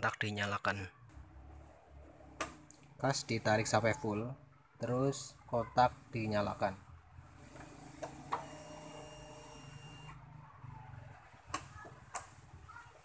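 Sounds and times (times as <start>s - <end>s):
electric fuel pump whirring: 7.2s - 10.2s.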